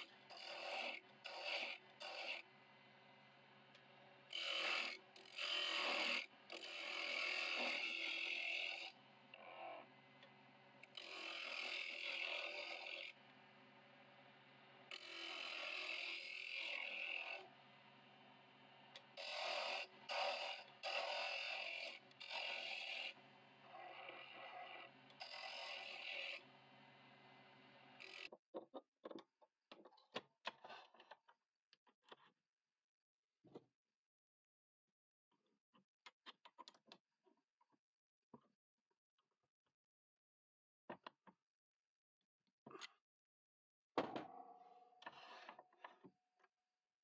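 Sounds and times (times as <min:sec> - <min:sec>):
chisel cutting wood on lathe: 0:00.3 - 0:02.5, 0:04.3 - 0:09.8, 0:10.8 - 0:13.1, 0:14.9 - 0:17.5, 0:19.0 - 0:26.5, 0:27.2 - 0:28.3.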